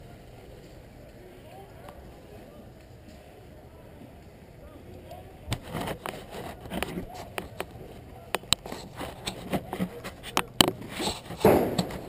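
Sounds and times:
faint distant voices: 0:00.0 - 0:12.0
airsoft guns firing: 0:11.4 - 0:12.0.

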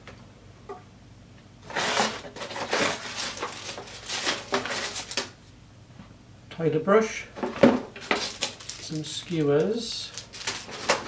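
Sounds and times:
cardboard and plastic rustling: 0:01.6 - 0:05.4, 0:07.4 - 0:11.0.

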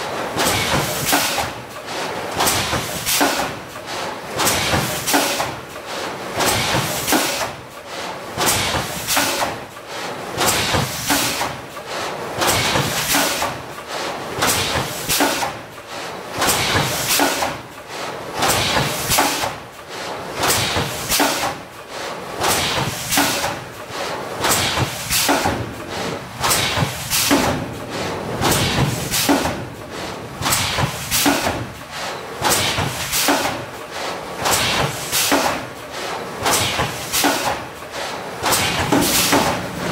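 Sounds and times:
rushing air bursts: 0:24.3 - 0:33.4, 0:38.4 - 0:39.9.

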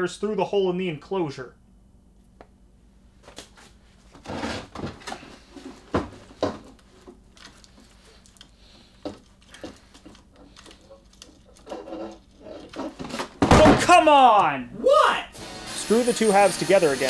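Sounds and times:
wooden knocks and scrapes: 0:04.2 - 0:07.2, 0:09.0 - 0:13.4.

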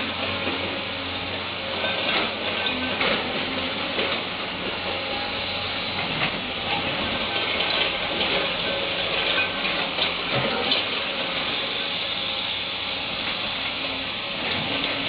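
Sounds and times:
excavator engine and hydraulics: 0:00.0 - 0:15.0.

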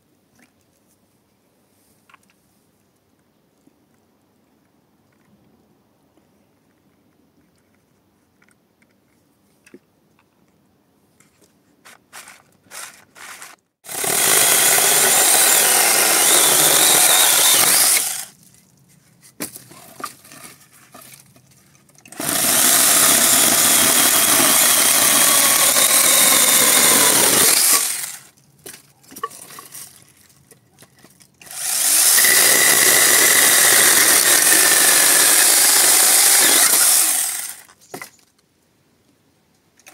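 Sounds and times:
mini chainsaw cutting branches: 0:12.1 - 0:18.4, 0:22.1 - 0:28.3, 0:31.4 - 0:37.8.

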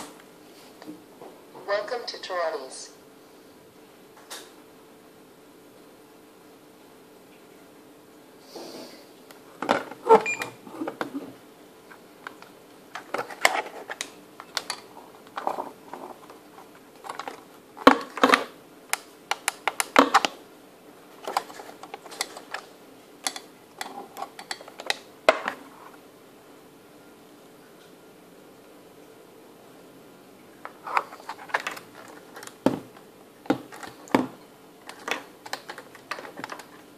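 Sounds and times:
faint steady hum: 0:00.0 - 0:36.9
plastic and metal handling clicks: 0:12.2 - 0:15.6, 0:17.0 - 0:20.4, 0:21.2 - 0:25.6, 0:30.9 - 0:34.2, 0:34.8 - 0:36.8.

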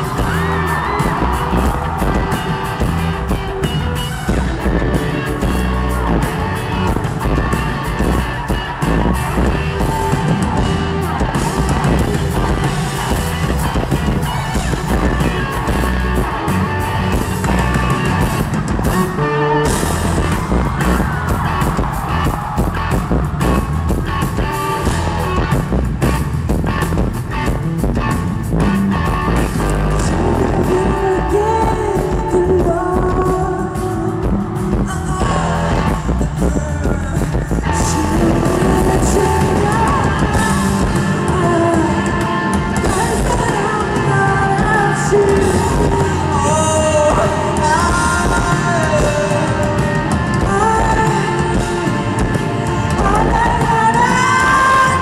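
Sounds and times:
electric guitar: 0:00.0 - 0:55.0
live rock band playing: 0:00.0 - 0:55.0
woman singing: 0:29.6 - 0:55.0.

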